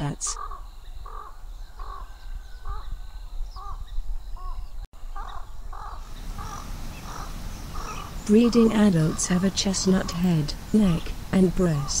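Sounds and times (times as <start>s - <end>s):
crows cawing: 0.4s - 2.9s, 5.1s - 8.2s.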